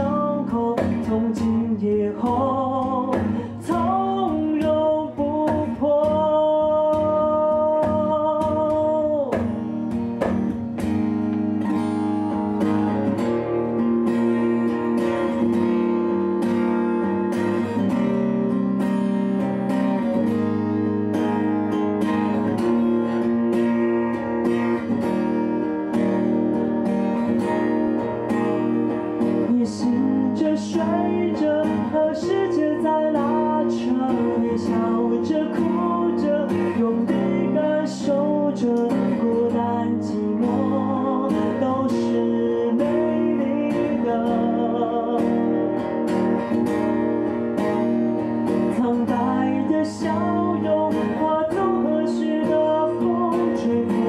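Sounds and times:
man singing: 0.0 - 10.3, 12.3 - 20.5, 28.0 - 46.9, 48.4 - 54.0
acoustic guitar strummed: 0.0 - 54.0.

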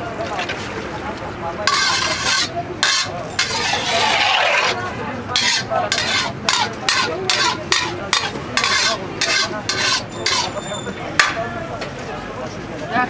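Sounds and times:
metal ladle stirring in metal pot: 1.7 - 10.6.

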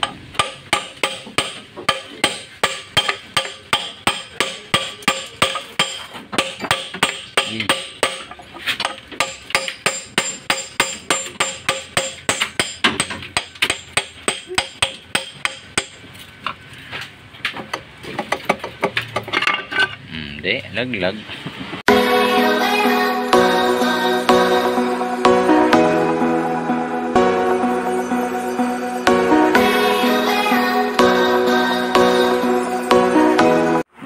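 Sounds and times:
hammer striking metal bar: 0.0 - 16.0.

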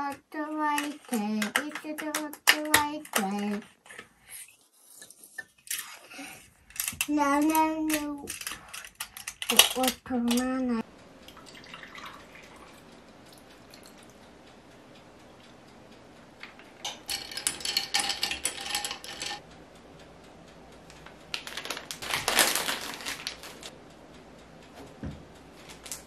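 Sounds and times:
dishes and cutlery clinking: 16.8 - 19.4.

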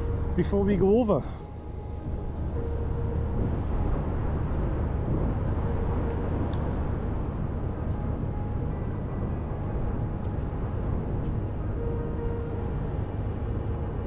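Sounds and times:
heavy low rumble: 0.0 - 14.0.

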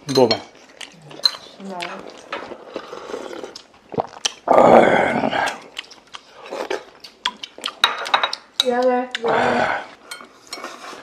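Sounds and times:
people biting and chewing: 0.6 - 10.1
cutlery clicking on dishes: 1.2 - 1.5, 7.2 - 9.0.

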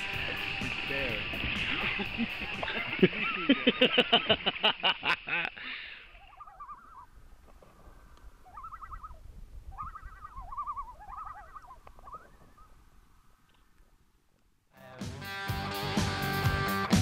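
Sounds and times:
loons tremolo calling: 0.0 - 3.6, 6.0 - 7.2, 8.0 - 12.8.

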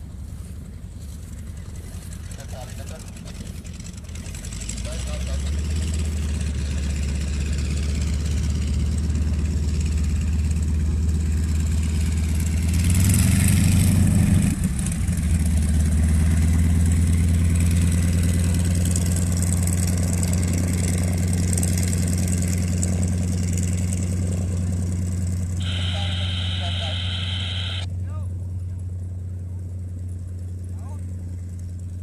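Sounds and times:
propeller plane engine droning: 0.0 - 32.0.

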